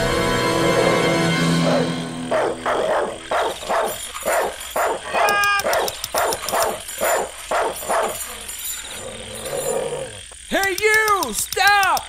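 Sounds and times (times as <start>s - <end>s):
dog whining: 1.6s - 10.2s
dog barking: 1.7s - 8.3s.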